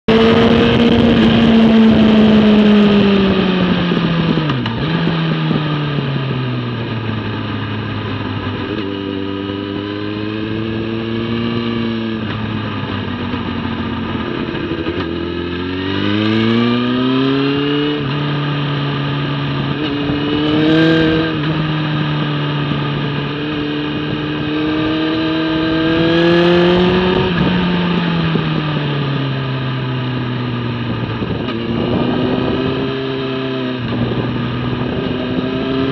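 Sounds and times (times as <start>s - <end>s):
motorcycle engine revving: 0.0s - 35.9s.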